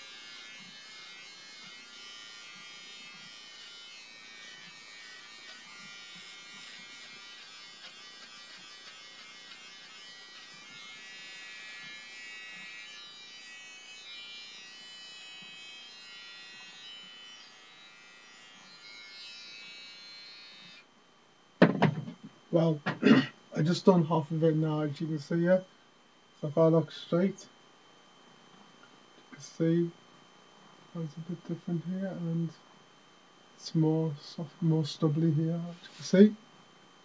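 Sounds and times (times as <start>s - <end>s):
electric beard trimmer whirring: 0.0s - 20.9s.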